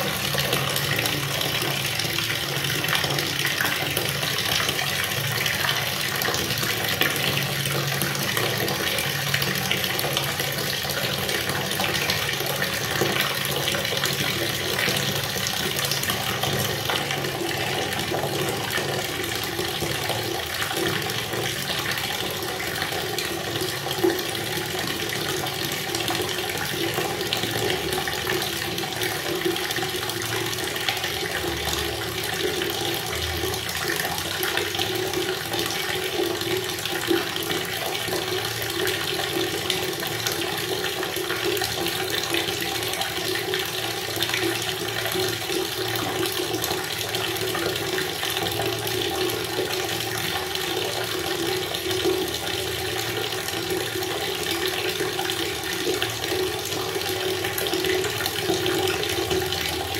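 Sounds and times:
tap water pouring into bucket: 0.0s - 59.9s.

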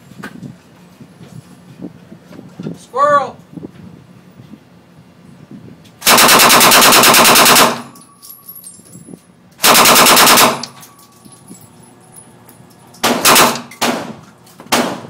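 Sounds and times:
submachine gun bursts: 6.0s - 8.0s, 9.6s - 11.0s, 13.0s - 13.9s.

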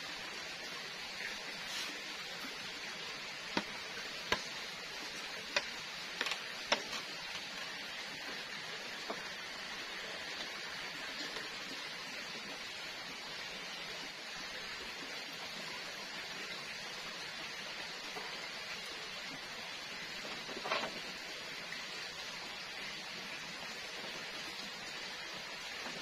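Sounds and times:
wood fire hissing: 0.0s - 26.0s
fire pops and clicks: 5.4s - 7.6s.

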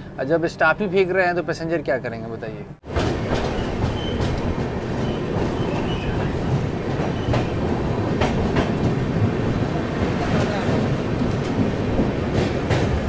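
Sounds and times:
train wheel rumble: 2.8s - 13.0s
wheels clacking over rail joints: 2.8s - 13.0s.

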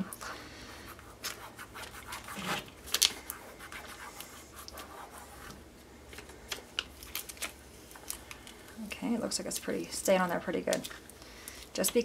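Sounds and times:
plastic film crackling: 6.1s - 12.0s.

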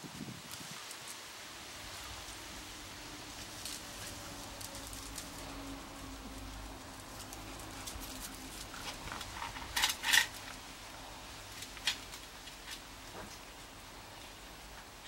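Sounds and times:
dogs play-fighting: 6.9s - 10.2s.

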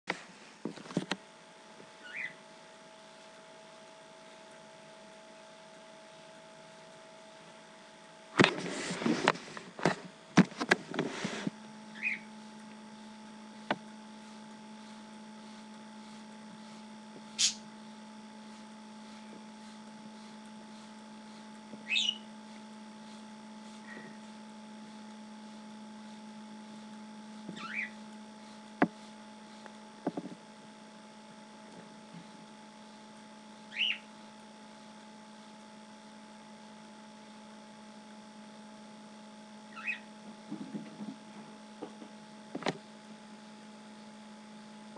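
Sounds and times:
steady low hum: 0.1s - 44.9s
bird chirping: 2.0s - 2.4s, 12.0s - 12.3s, 21.8s - 22.2s, 27.6s - 28.0s, 33.7s - 34.0s, 39.7s - 40.0s.

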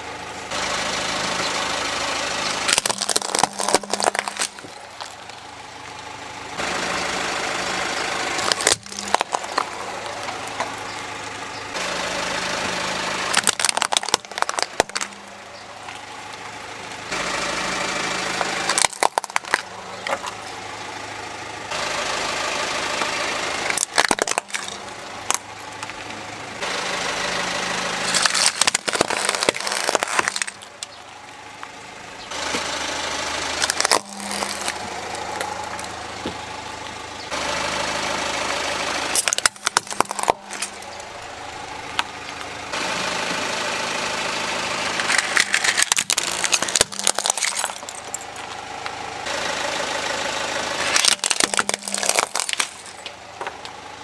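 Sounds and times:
car engine idling: 0.0s - 54.0s
plastic toys cracking and crunching: 2.6s - 5.5s, 8.3s - 10.9s, 13.2s - 15.2s, 18.4s - 20.4s, 23.6s - 26.1s, 28.0s - 31.2s, 33.5s - 36.4s, 39.1s - 42.5s, 45.0s - 49.0s, 50.8s - 53.8s.

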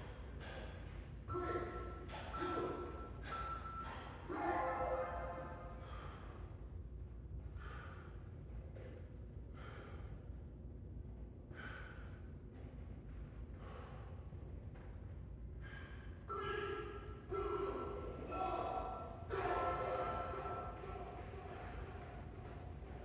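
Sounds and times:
man breathing hard: 0.0s - 1.0s, 5.5s - 6.8s, 7.4s - 10.6s, 11.4s - 12.8s, 13.4s - 14.6s, 15.5s - 18.1s
low steady hum: 0.0s - 23.0s
timer beeps: 1.3s - 5.5s, 16.3s - 21.3s.

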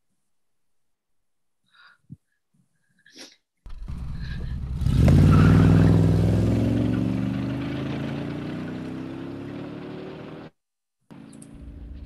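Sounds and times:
van engine starting and revving: 3.7s - 10.5s.

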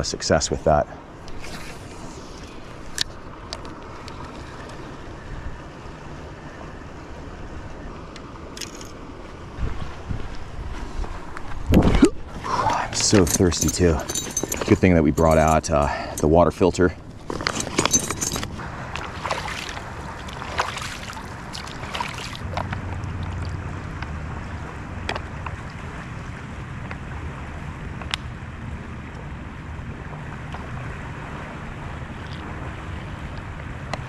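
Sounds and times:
flowing river: 0.0s - 34.0s
wind on microphone: 9.4s - 13.4s
gear pouch rustling and crinkling: 17.2s - 18.6s.

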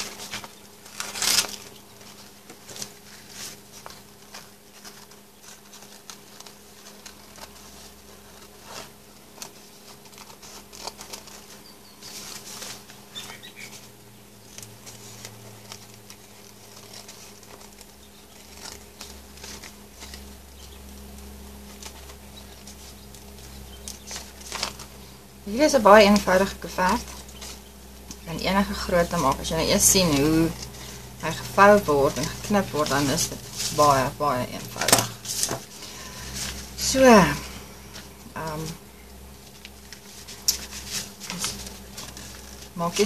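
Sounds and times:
faint steady hum: 0.0s - 43.0s
paper rustling: 0.0s - 43.0s.

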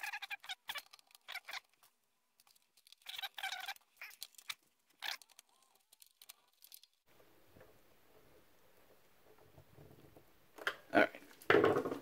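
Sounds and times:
plastic crinkling and clicking: 0.4s - 7.0s.

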